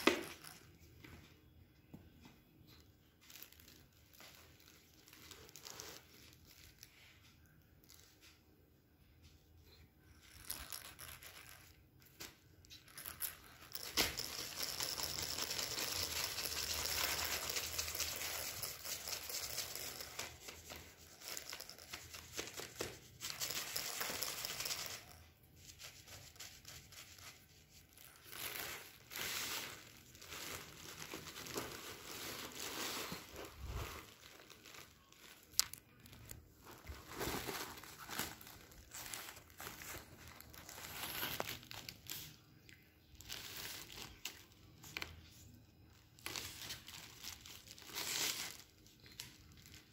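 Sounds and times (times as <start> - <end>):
plastic packaging crinkling: 27.8 - 42.3, 46.2 - 49.9.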